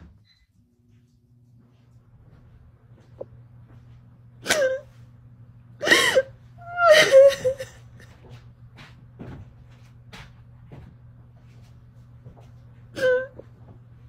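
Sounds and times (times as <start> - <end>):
woman sobbing: 4.4 - 4.9, 5.8 - 8.1, 12.9 - 13.4.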